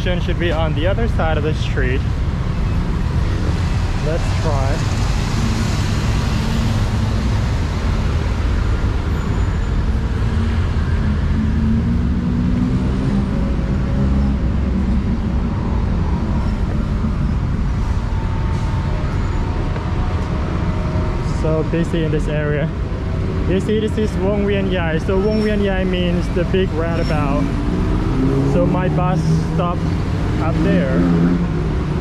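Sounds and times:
heavy road traffic rumble: 0:00.0 - 0:32.0
engine speeding up: 0:09.8 - 0:19.0, 0:26.0 - 0:32.0.

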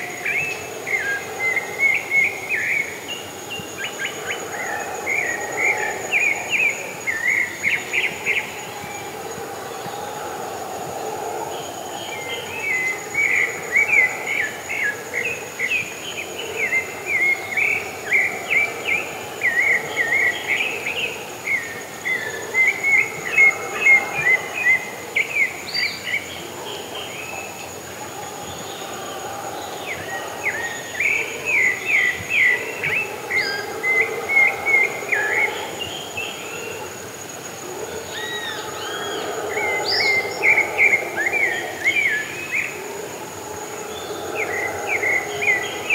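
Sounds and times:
high insect drone: 0:00.0 - 0:45.9.

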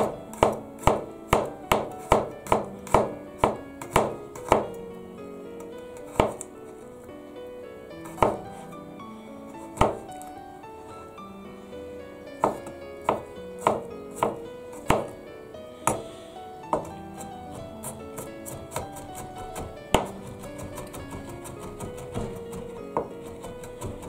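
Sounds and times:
knife chopping on cutting board: 0:00.0 - 0:04.7, 0:06.0 - 0:06.5, 0:08.1 - 0:08.4, 0:09.8 - 0:10.1, 0:12.4 - 0:15.2, 0:16.7 - 0:24.0.

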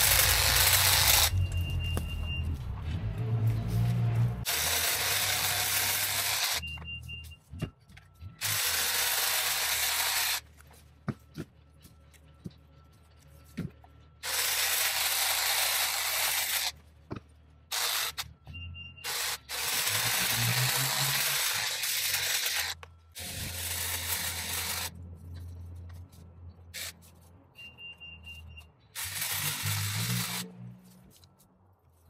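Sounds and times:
hedge trimmer cutting: 0:00.0 - 0:01.4, 0:04.4 - 0:06.6, 0:08.4 - 0:10.4, 0:14.2 - 0:16.8, 0:17.7 - 0:18.2, 0:19.0 - 0:25.0, 0:29.0 - 0:30.8.

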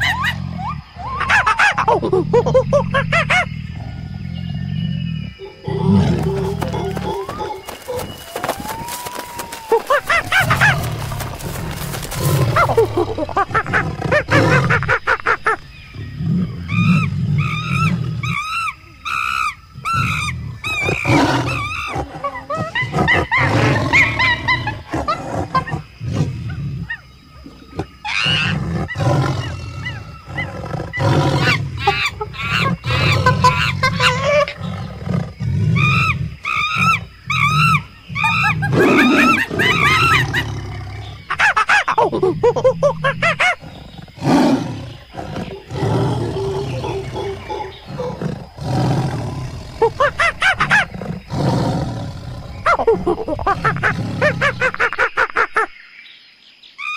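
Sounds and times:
high-pitched monkey calls: 0:00.0 - 0:03.6, 0:35.8 - 0:40.6, 0:41.3 - 0:43.9
tiger growls: 0:00.0 - 0:07.7, 0:10.0 - 0:15.2, 0:15.8 - 0:54.8.

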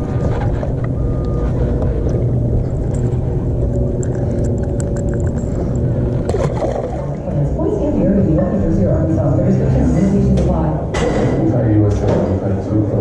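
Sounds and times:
low rumble: 0:00.0 - 0:13.0
fish splashing into water: 0:06.2 - 0:07.2.

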